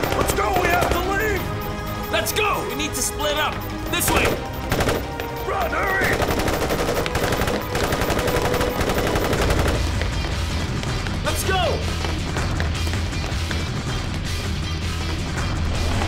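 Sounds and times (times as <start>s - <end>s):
men shouting: 0.0s - 1.6s
automatic rifle fire: 6.1s - 9.9s.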